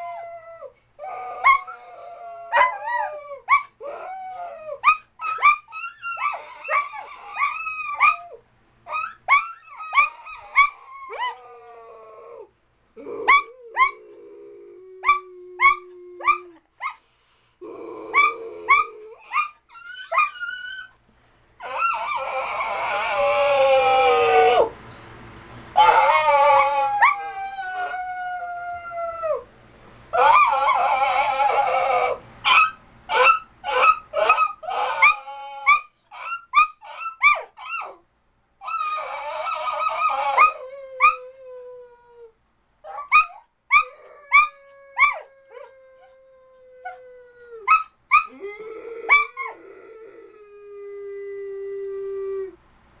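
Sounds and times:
dog howling: 0:00.0 - 0:16.6, 0:17.6 - 0:20.9, 0:21.6 - 0:24.7, 0:25.8 - 0:29.4, 0:30.2 - 0:38.0, 0:38.6 - 0:42.3, 0:42.9 - 0:52.6
dog yipping: 0:01.4 - 0:11.5, 0:18.1 - 0:21.0, 0:30.2 - 0:38.0, 0:38.6 - 0:41.3, 0:42.9 - 0:45.2, 0:47.7 - 0:48.4.

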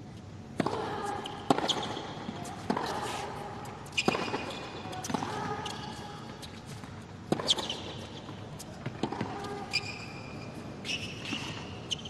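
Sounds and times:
shoe squeaks: 0:03.8 - 0:06.8, 0:07.4 - 0:12.0
ball bouncing on hard court: 0:03.8 - 0:10.1
tennis ball hit with racket: 0:03.9 - 0:05.8, 0:07.3 - 0:08.1.

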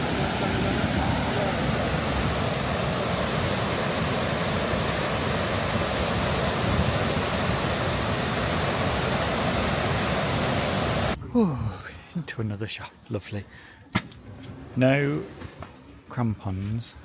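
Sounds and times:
waterfall roaring: 0:00.0 - 0:11.2
wind buffeting microphone: 0:00.0 - 0:11.2.

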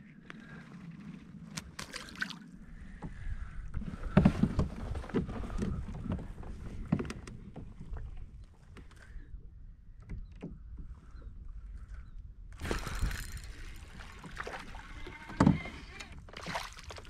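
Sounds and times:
fish splashing into water: 0:01.7 - 0:02.5, 0:12.6 - 0:15.0, 0:16.4 - 0:17.0
wind rumbling on microphone: 0:02.4 - 0:16.5.

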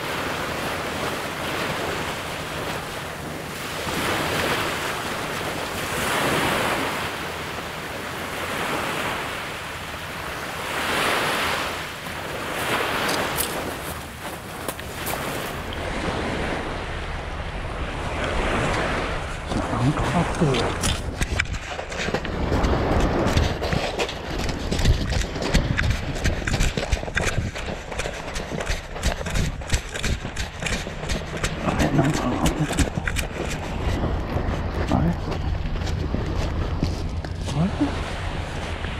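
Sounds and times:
waves washing on gravel shore: 0:00.0 - 0:38.9
footsteps crunching on pebbles: 0:12.5 - 0:15.6, 0:20.4 - 0:38.9.

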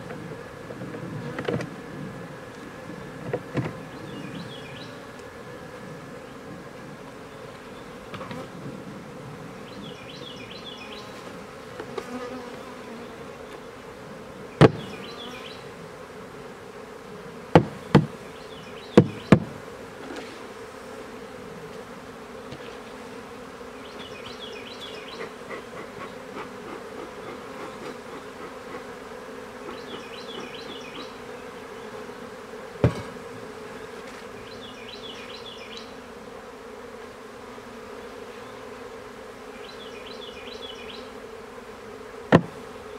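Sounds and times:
bees buzzing: 0:00.0 - 0:42.9
wooden knocks of hive frames: 0:03.2 - 0:03.9, 0:08.1 - 0:08.5, 0:14.6 - 0:15.0, 0:17.5 - 0:18.2, 0:18.9 - 0:20.3, 0:32.7 - 0:33.6, 0:42.2 - 0:42.7.

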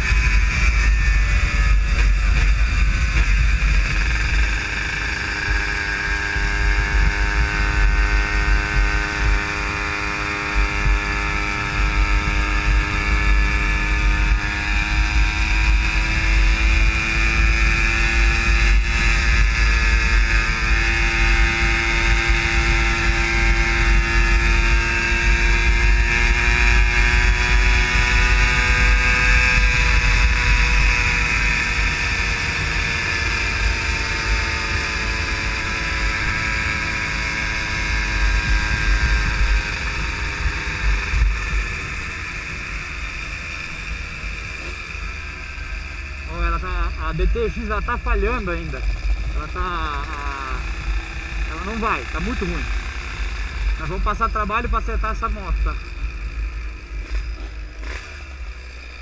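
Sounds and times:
vehicle engine cruising: 0:00.0 - 0:59.0
wind rumble on microphone: 0:00.0 - 0:59.0.

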